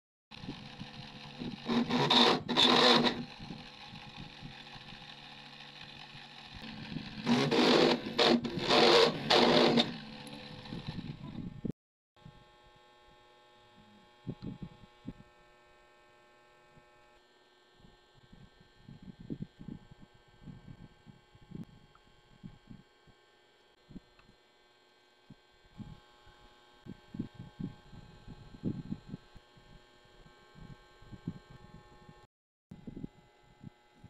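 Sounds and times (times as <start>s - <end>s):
drill bit grinding metal: 0.3s - 11.7s
small motor humming: 0.3s - 34.0s.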